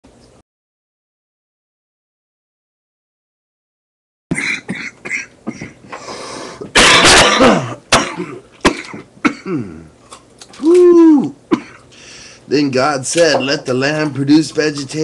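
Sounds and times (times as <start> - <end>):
person clearing throat: 4.3 - 5.8, 6.7 - 10.0, 11.5 - 11.9
person coughing: 4.3 - 5.8, 6.7 - 9.9, 11.5 - 11.9.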